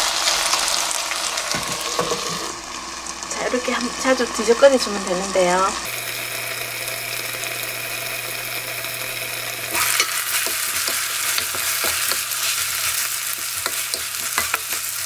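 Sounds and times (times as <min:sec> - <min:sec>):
food sizzling in a frying pan: 0:00.0 - 0:15.0
wooden spoon scraping a pan: 0:01.5 - 0:02.6, 0:09.7 - 0:15.0.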